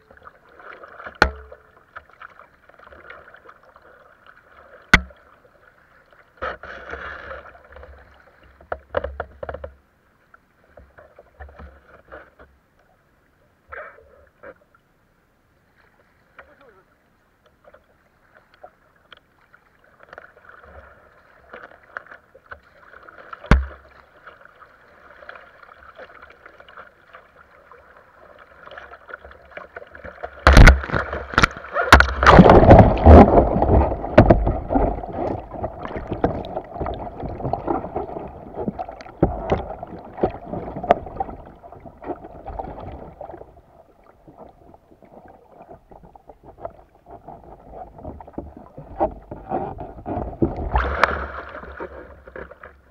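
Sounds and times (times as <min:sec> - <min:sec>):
water rushing past kayak hull: 0:22.4 - 0:52.9
loud splashing and churning: 0:28.6 - 0:43.6, 0:47.1 - 0:52.5.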